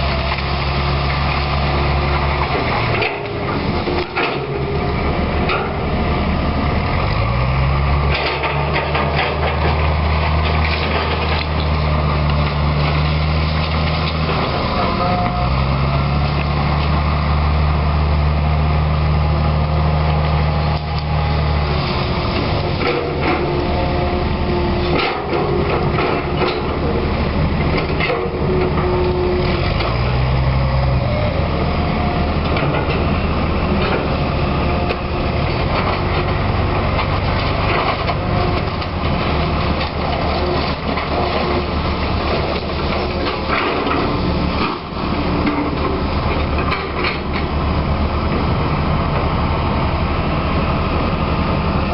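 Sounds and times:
excavator diesel engine: 0.0s - 51.9s.

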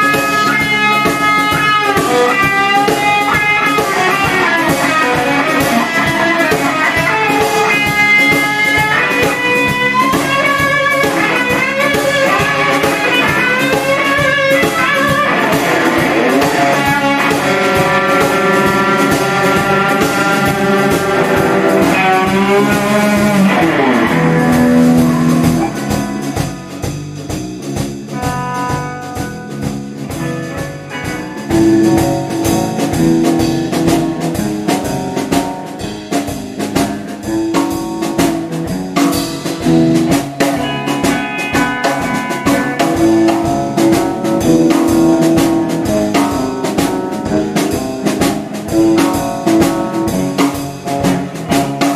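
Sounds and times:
band music: 0.0s - 51.9s
lead guitar bending notes: 0.0s - 51.9s.

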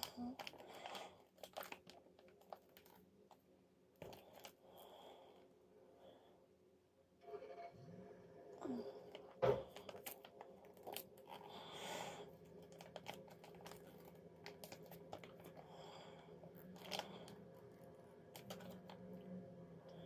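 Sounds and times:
foil sachet crinkling: 0.0s - 3.0s, 9.7s - 19.0s.

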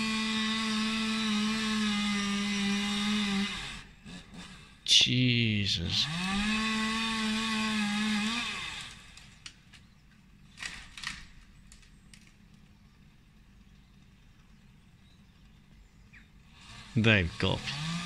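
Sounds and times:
chainsaw running at high revs: 0.0s - 5.0s, 5.8s - 9.5s, 16.4s - 18.0s.

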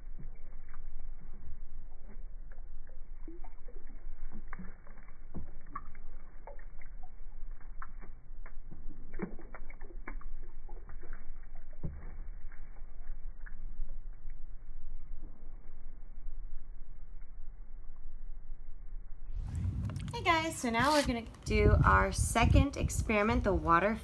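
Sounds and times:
water splashing in a plastic bowl: 0.0s - 16.3s
low rumble: 0.0s - 23.8s.

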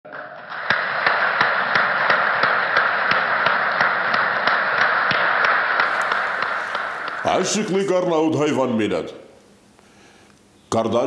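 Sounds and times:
sharp taps: 0.5s - 7.6s
crowded hall noise: 0.5s - 7.8s.

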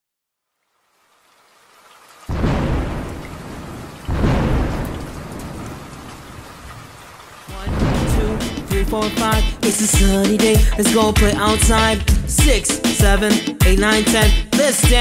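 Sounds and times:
rain hiss: 0.5s - 13.0s
thunder rumbling: 2.3s - 12.7s.

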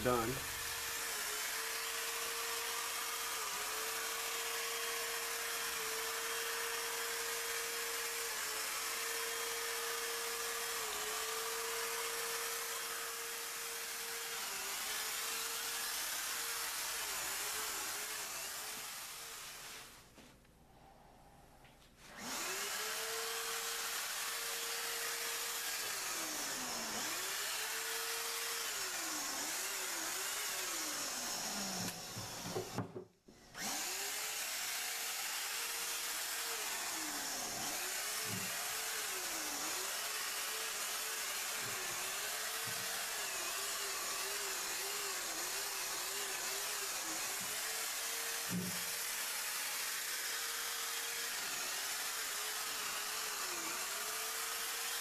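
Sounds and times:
electric paint sprayer hissing: 0.0s - 20.0s, 33.6s - 55.0s.

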